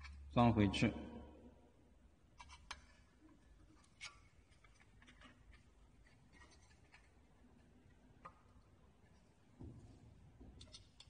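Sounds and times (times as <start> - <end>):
faint metal clicks and taps: 7.8 - 9.7, 10.4 - 11.0.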